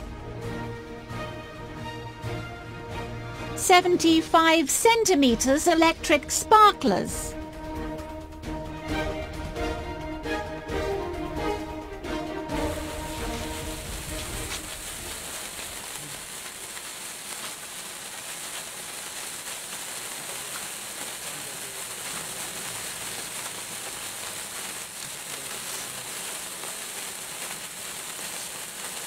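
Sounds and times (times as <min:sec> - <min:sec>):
sparkler hissing and crackling: 0:03.6 - 0:08.0, 0:12.4 - 0:29.0.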